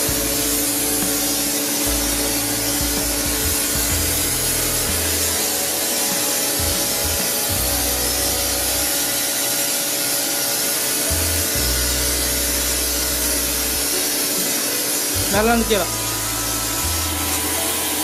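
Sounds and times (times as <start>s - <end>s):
low motor hum: 0.0s - 9.3s, 11.1s - 14.0s, 15.1s - 18.0s
pressure washer spray hissing: 0.0s - 18.0s.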